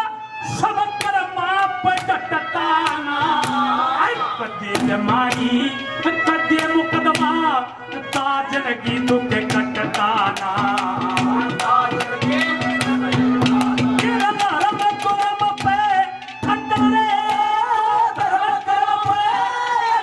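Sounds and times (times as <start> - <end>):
man singing into microphone: 0.0 - 20.0
hand drum strokes: 8.8 - 17.6.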